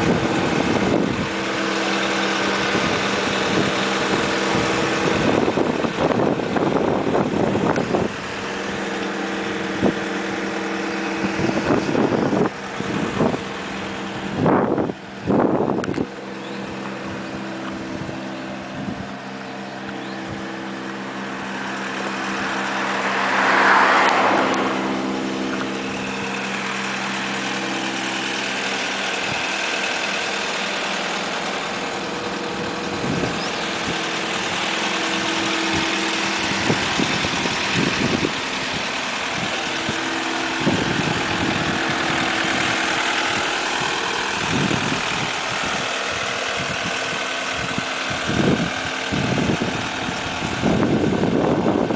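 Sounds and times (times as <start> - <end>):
diesel engine idling: 0.0 - 51.9.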